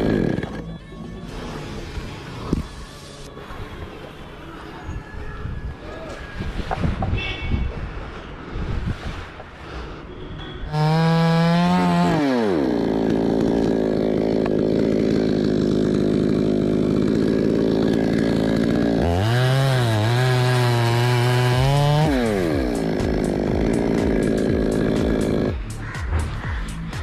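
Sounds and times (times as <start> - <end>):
chainsaw cutting through trunk: 0.0 - 2.6, 10.7 - 25.6.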